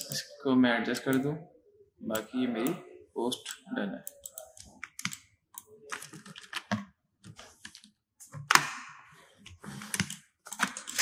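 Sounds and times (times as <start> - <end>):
keyboard typing: 2.1 - 8.6, 9.8 - 11.0.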